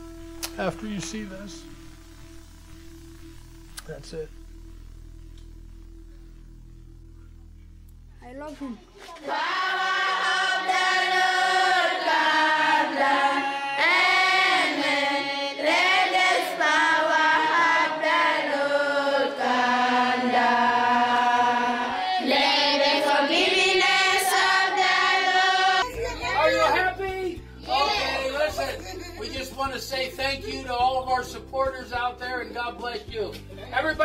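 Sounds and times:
voices singing slow melody: 9.0 - 34.0.

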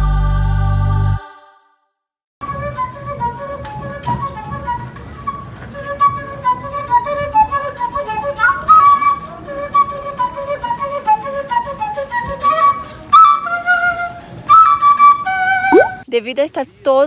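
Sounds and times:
wooden flute melody: 2.4 - 16.0
light street hum: 2.4 - 17.0.

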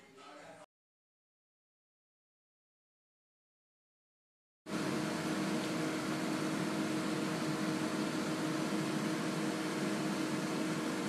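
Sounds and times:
hair dryer blowing air: 4.7 - 11.0
low motor hum: 4.7 - 11.0.

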